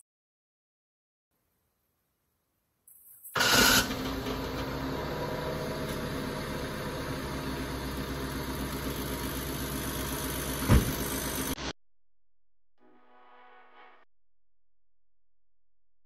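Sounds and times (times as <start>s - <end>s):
car engine idling: 3.4s - 11.6s
low thump: 10.6s - 11.0s.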